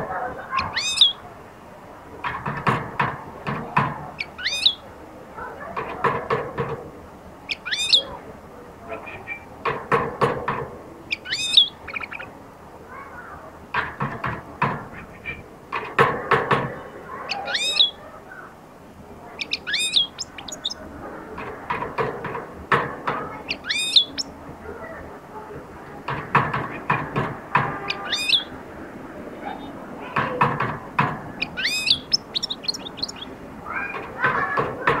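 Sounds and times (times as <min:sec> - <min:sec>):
bird twittering: 0:00.5 - 0:01.2, 0:04.2 - 0:04.8, 0:07.5 - 0:08.1, 0:11.1 - 0:12.3, 0:17.3 - 0:18.0, 0:19.4 - 0:20.9, 0:23.4 - 0:24.4, 0:27.8 - 0:28.6, 0:31.3 - 0:34.0.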